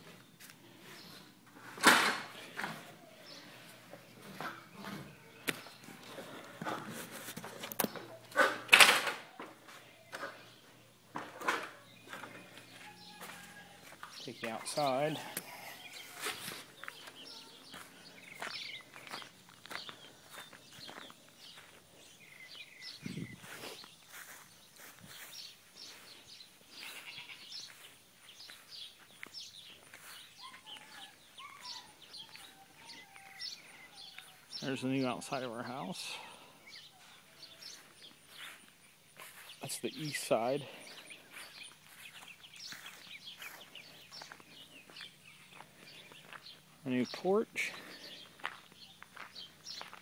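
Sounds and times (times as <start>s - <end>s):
birds chirping: 0.0s - 50.0s
footsteps on concrete floor: 0.1s - 1.2s, 3.6s - 8.2s, 9.6s - 34.6s, 36.8s - 39.7s, 40.7s - 46.7s, 47.6s - 50.0s
footsteps on wooden ladder: 3.9s - 10.4s, 11.1s - 21.8s.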